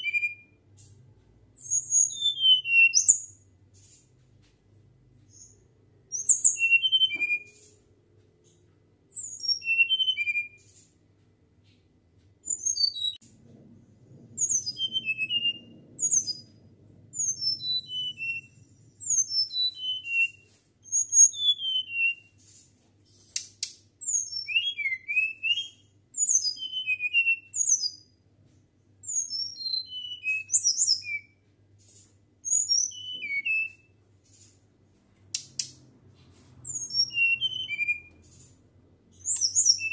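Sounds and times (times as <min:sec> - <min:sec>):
flycatcher whistling song: 0:01.6 - 0:03.4, 0:05.3 - 0:07.6, 0:09.2 - 0:10.7, 0:14.4 - 0:16.5, 0:17.2 - 0:22.4, 0:24.0 - 0:28.1, 0:29.0 - 0:31.4, 0:32.4 - 0:34.0, 0:36.6 - 0:38.2, 0:39.2 - 0:39.9.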